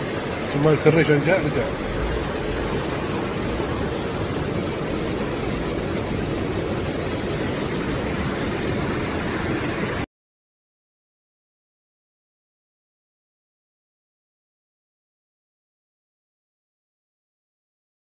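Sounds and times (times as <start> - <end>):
wind buffeting microphone: 0.0 - 10.0
heavy rain: 0.0 - 10.1.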